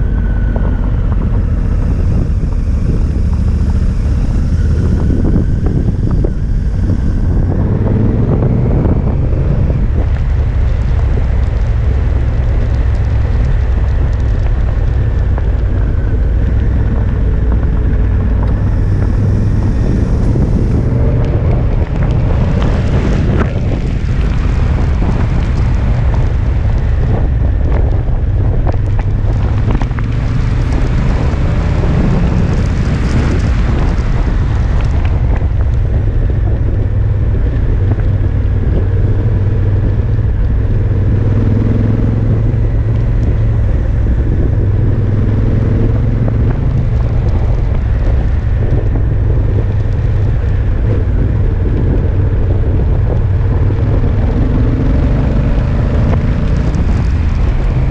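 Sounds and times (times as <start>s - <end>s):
motorcycle engine running: 0.0s - 57.9s
wind buffeting microphone: 0.0s - 57.9s.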